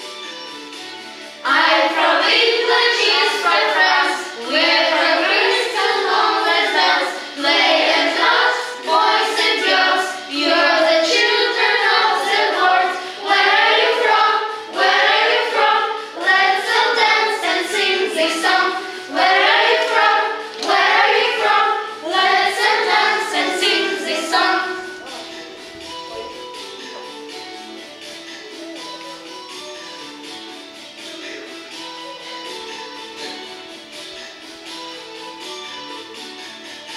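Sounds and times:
children singing together: 1.4 - 27.4.

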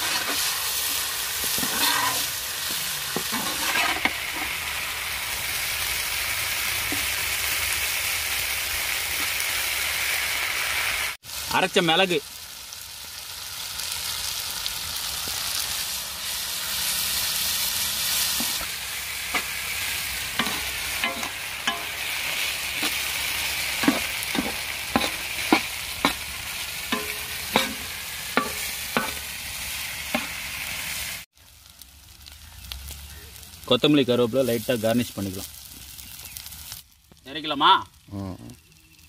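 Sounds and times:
steel ladle scraping pan: 0.0 - 4.6, 20.4 - 23.1, 23.8 - 26.2, 26.9 - 29.2
food sizzling in a pan: 0.0 - 39.0.

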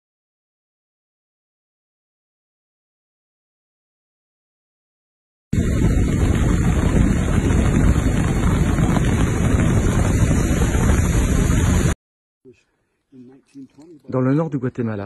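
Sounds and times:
wind buffeting microphone: 5.6 - 12.0.

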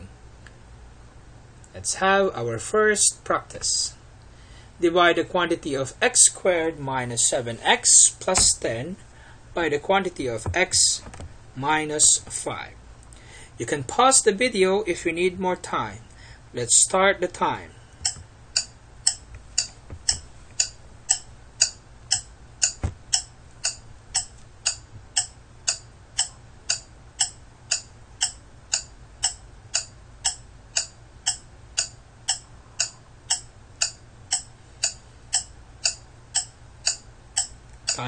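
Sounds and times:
clock ticking: 18.0 - 38.0.

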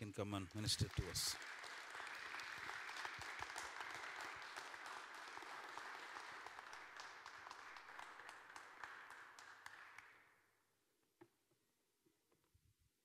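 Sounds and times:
congregation applauding: 0.0 - 10.4.

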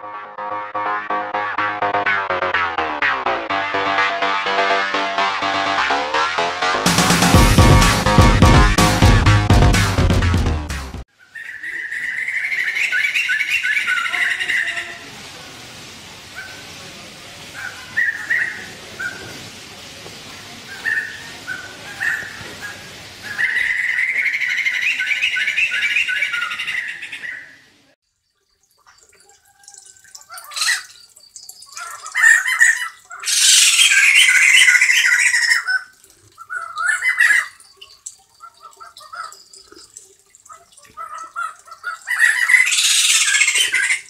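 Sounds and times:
birds calling and chattering: 11.2 - 15.1, 17.4 - 19.5, 20.6 - 27.7, 28.6 - 44.0.

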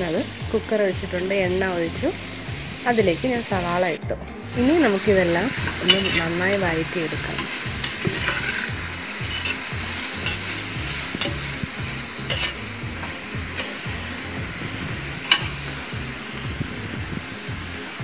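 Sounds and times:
onions sizzling in oil: 4.3 - 18.0
metal spatula scraping pot: 5.5 - 14.3, 15.2 - 15.8.

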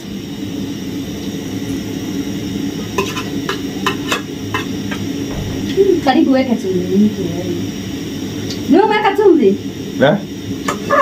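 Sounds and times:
steady low hum: 5.1 - 8.4
metal spoon knocking on pot: 5.3 - 6.4.

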